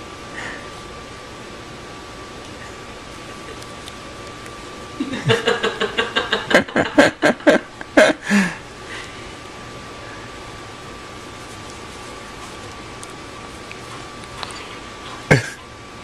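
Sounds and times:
person laughing: 5.0 - 8.6, 15.3 - 15.6.

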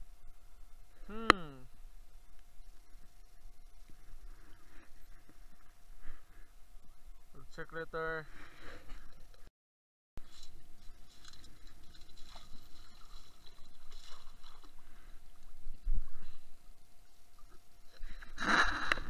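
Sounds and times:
muffled underwater sloshing: 10.2 - 19.0.

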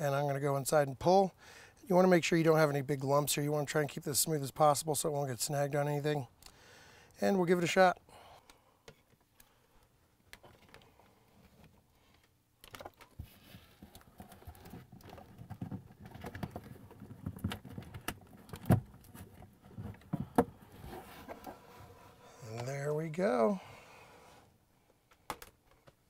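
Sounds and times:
wiring rustling: 8.9 - 23.4.

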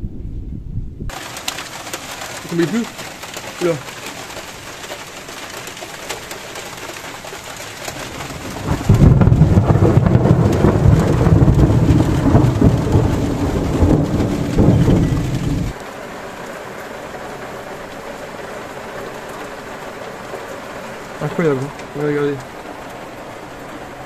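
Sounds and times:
heavy rain hissing: 1.1 - 24.0
rolling thunder rumble: 7.7 - 15.8.

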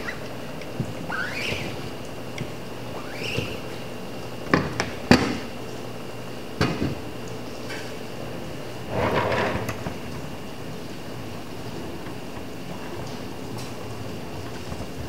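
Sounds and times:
wheeled dryer scraping across table: 0.0 - 2.0, 2.9 - 3.9, 8.8 - 10.1.

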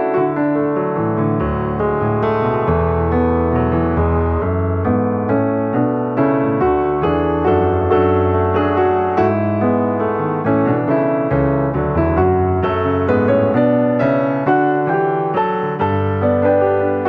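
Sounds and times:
piano music: 0.0 - 17.0.

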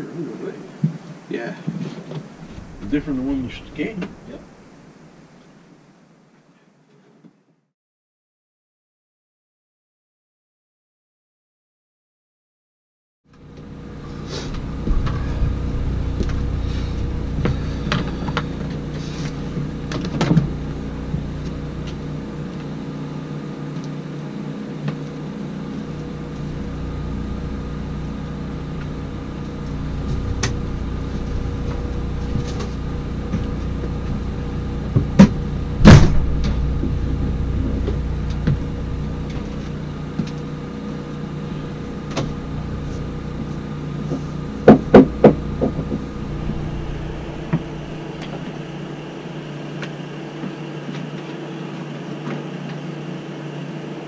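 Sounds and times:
mechanical hum: 0.0 - 6.9, 13.3 - 54.0
knocks and clunks: 14.5 - 16.5, 34.9 - 40.4, 44.1 - 49.0.

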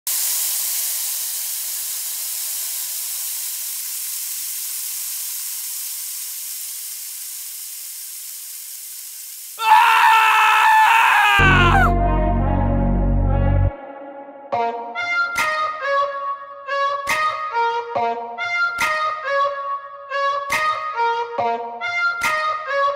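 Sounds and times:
sand pouring onto sand: 0.1 - 11.8
electronic music: 11.4 - 13.8.

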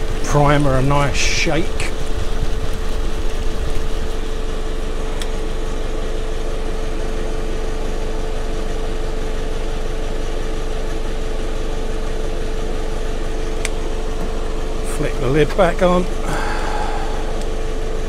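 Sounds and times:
small electric motor humming: 12.9 - 18.0.

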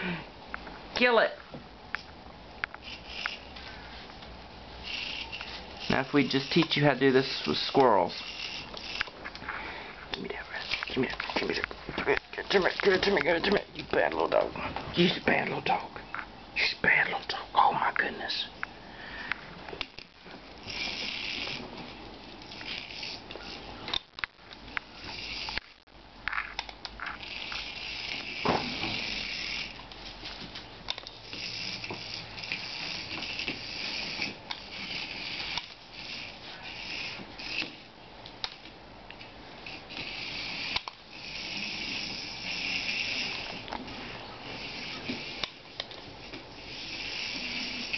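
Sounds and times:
toy electric motor whirring: 2.7 - 3.7, 4.8 - 9.3, 19.8 - 24.1, 24.7 - 25.8, 26.4 - 30.0, 30.9 - 47.9.

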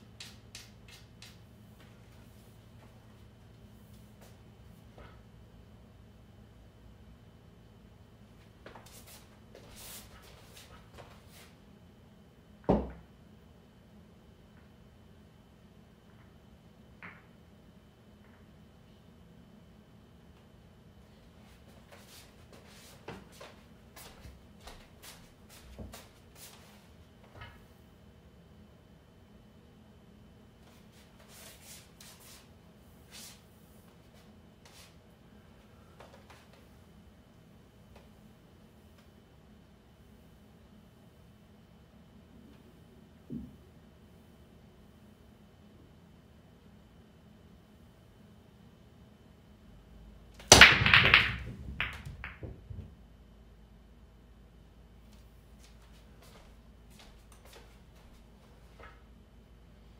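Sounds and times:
pool balls tapping: 50.4 - 53.0
ball thump: 50.5 - 52.9.

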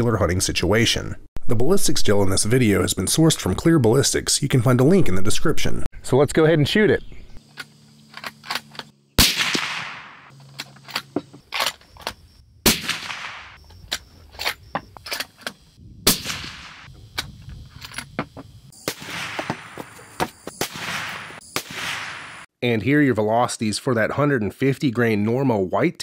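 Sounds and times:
suppressed rifle shots: 9.2 - 10.3, 12.6 - 13.6, 16.1 - 16.9, 18.9 - 19.8, 20.6 - 22.4.

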